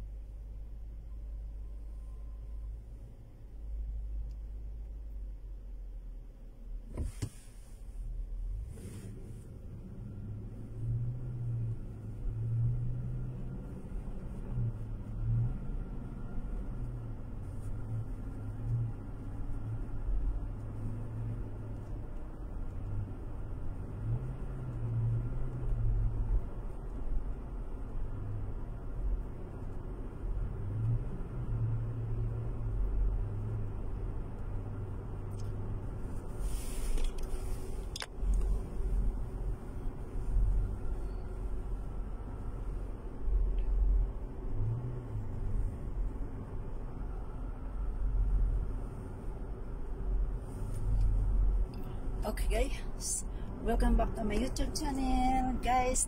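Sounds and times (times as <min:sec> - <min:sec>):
car engine and road rumble: 0:00.0 - 0:56.0
brief hiss: 0:06.9 - 0:09.6, 0:36.1 - 0:38.5.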